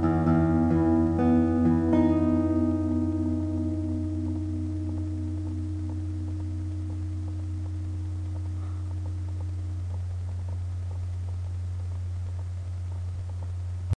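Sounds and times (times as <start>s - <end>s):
acoustic guitar chord ringing: 0.0s - 10.2s
steady low hum: 0.0s - 13.9s.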